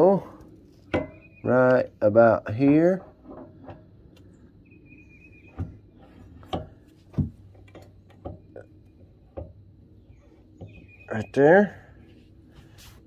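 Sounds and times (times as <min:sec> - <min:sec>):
light knocks and clicks of metal pump: 0:02.5 - 0:04.3, 0:05.5 - 0:09.7.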